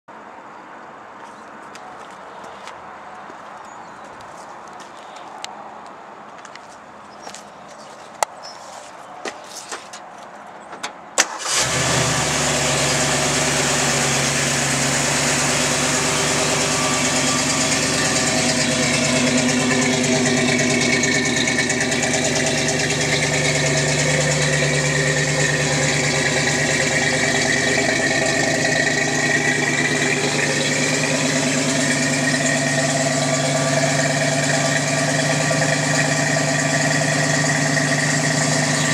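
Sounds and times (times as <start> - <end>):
engine starting and idling: 11.2 - 38.9.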